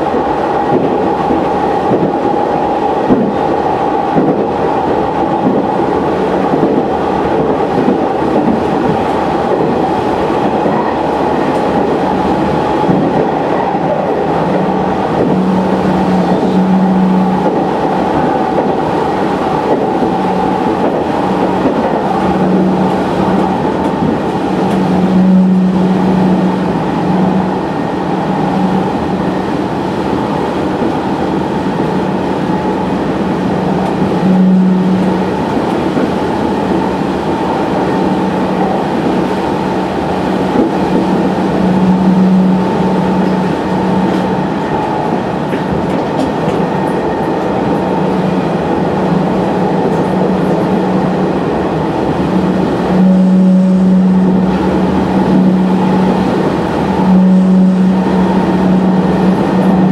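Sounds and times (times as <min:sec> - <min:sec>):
railcar engine and running noise: 0:00.0 - 0:59.9
low hum: 0:52.8 - 0:59.9.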